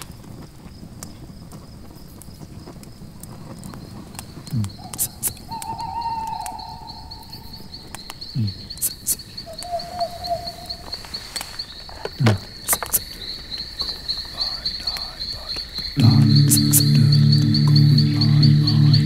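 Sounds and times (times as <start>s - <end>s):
crickets chirping: 0.0s - 19.0s
sharp clicks: 2.8s - 9.8s.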